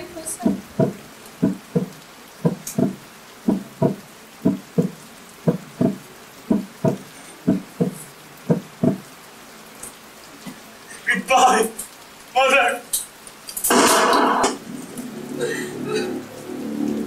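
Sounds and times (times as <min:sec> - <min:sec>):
heartbeat thumps: 0:00.4 - 0:09.1.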